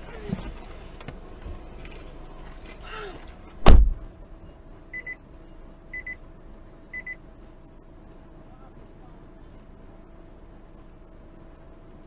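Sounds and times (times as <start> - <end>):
car door shutting: 0.0 - 4.1.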